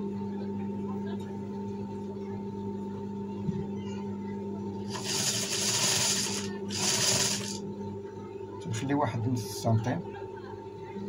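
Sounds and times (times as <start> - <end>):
steady low hum: 0.0 - 11.0
industrial sewing machine stitching: 4.9 - 7.6.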